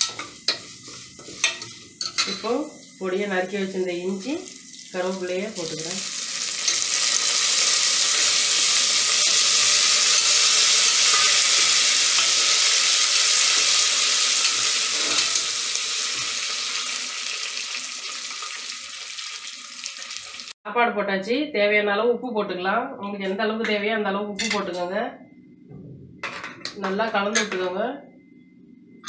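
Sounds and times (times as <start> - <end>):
steel ladle stirring: 0.0 - 2.5, 9.6 - 12.6
spices sizzling in hot oil: 0.0 - 20.6.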